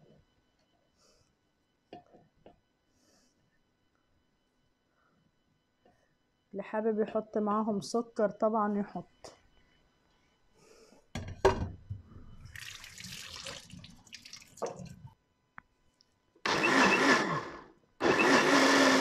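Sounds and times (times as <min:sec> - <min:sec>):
electric blender running: 0:16.4 - 0:19.0.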